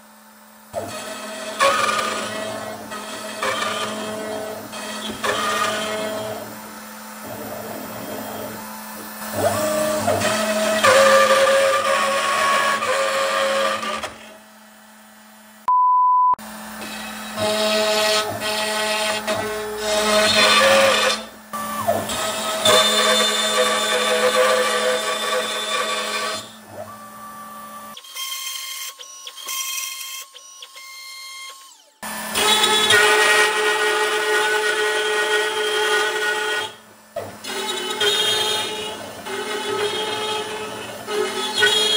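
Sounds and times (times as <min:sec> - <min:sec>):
router milling board: 0:00.0 - 0:15.6, 0:16.4 - 0:41.9
short steady beep: 0:15.7 - 0:16.4.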